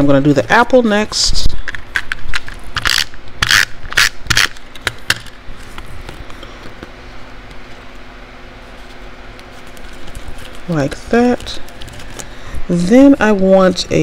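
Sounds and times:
paper rustling and scraping: 0:08.6 - 0:14.0.

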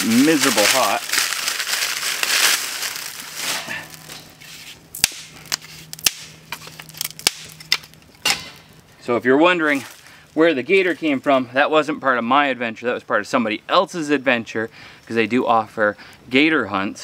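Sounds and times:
dry palm fronds crunching: 0:00.0 - 0:11.4
fire crackling and popping: 0:00.0 - 0:11.4.

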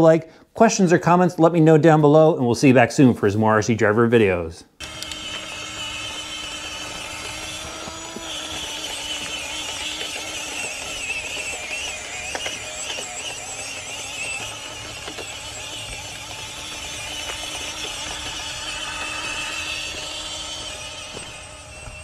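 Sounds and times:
toy car electric motor whine: 0:04.8 - 0:22.0
tyres clicking and crunching: 0:04.8 - 0:22.0.

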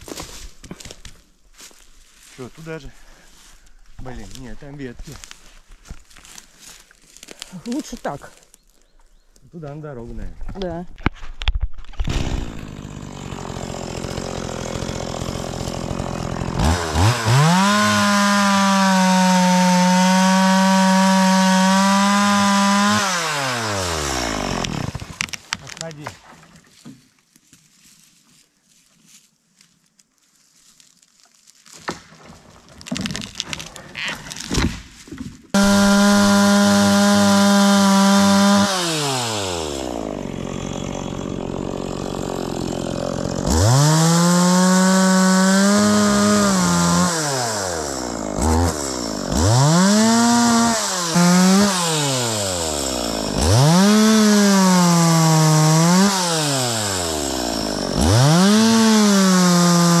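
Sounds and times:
chainsaw revving: 0:12.0 - 0:25.2, 0:35.5 - 1:00.0.

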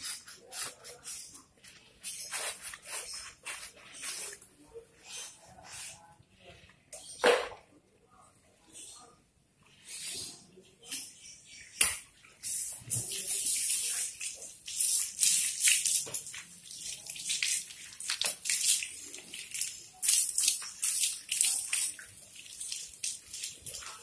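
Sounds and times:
hose water splashing: 0:12.4 - 0:24.0.

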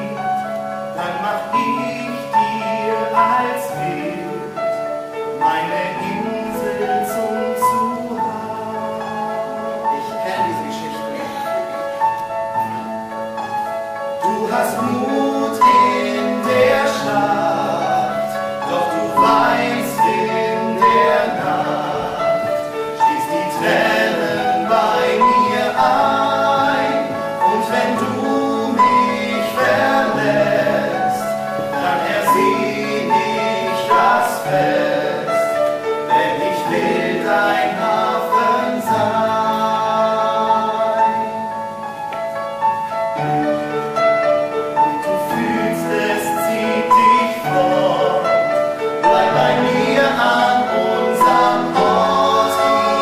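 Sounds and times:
men singing duet: 0:00.0 - 0:11.8, 0:14.2 - 0:41.6, 0:44.8 - 0:53.0
piano accompaniment: 0:00.0 - 0:53.0.

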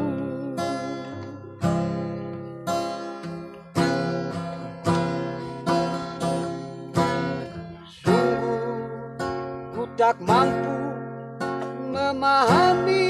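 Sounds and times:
acoustic guitar strummed chords: 0:00.0 - 0:13.0.

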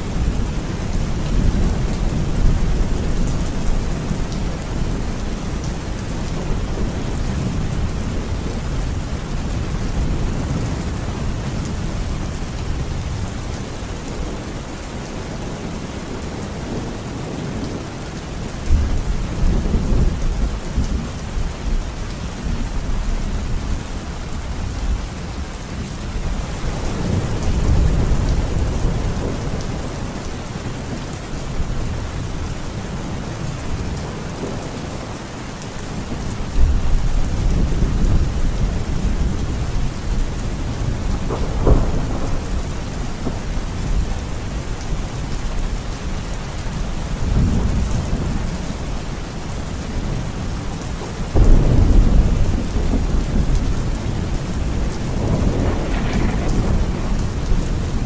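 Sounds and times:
heavy rain: 0:00.0 - 0:58.0
thunder rumbling and cracking: 0:26.3 - 0:30.4, 0:35.9 - 0:46.3, 0:51.2 - 0:58.0.

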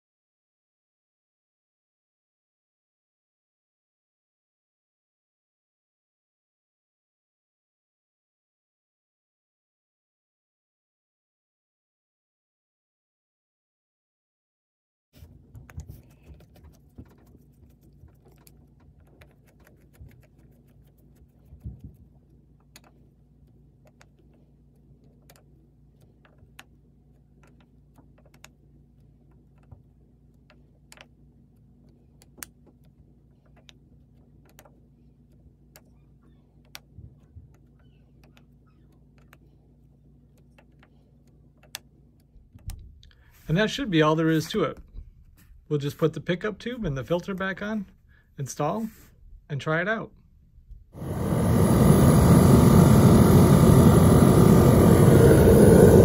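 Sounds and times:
faint steady hum: 0:15.2 - 0:56.0.

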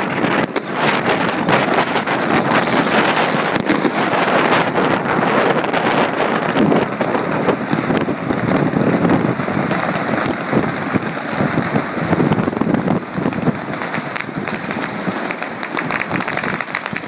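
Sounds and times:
distant fireworks crackling: 0:00.0 - 0:17.0.

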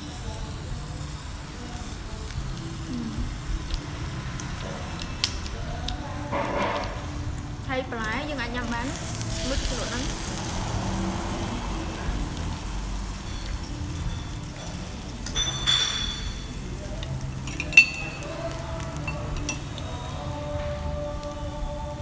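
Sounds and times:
food sizzling on grill: 0:00.0 - 0:22.0
chopsticks clinking on dishes: 0:14.6 - 0:16.6, 0:17.4 - 0:19.9.

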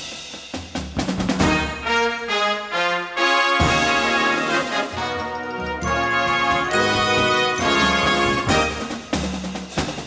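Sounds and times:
drums striking: 0:00.0 - 0:02.3, 0:03.5 - 0:10.0
brass held notes: 0:01.4 - 0:09.3.

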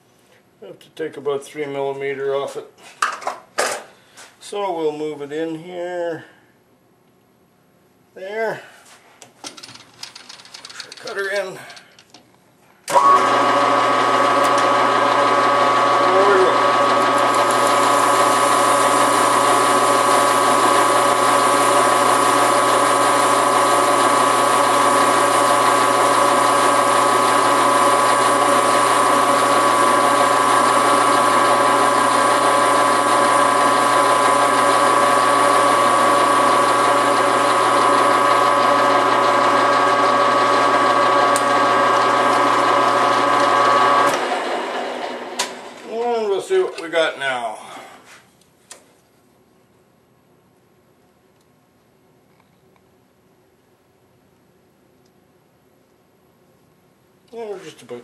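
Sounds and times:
metal lathe gear whine: 0:12.9 - 0:45.3
cutter cutting metal: 0:12.9 - 0:45.5.

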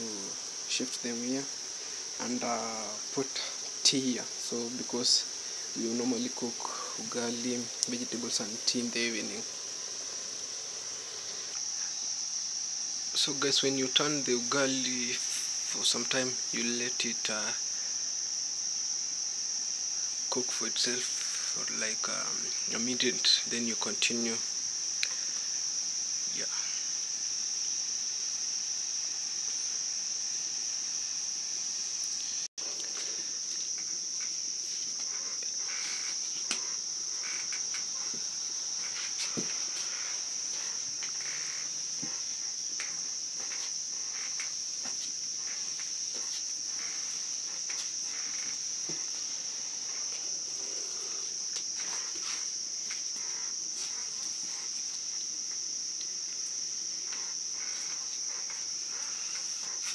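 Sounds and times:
crickets chirring: 0:00.0 - 0:59.9.

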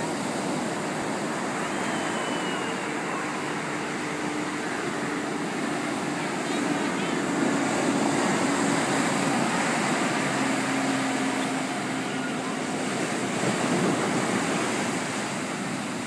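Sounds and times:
waves breaking on beach: 0:00.0 - 0:16.0.

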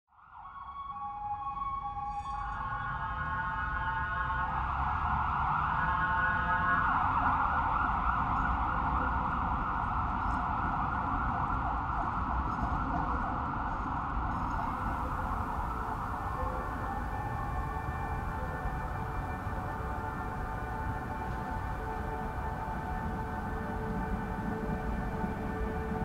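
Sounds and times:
siren wailing: 0:14.4 - 0:26.0.

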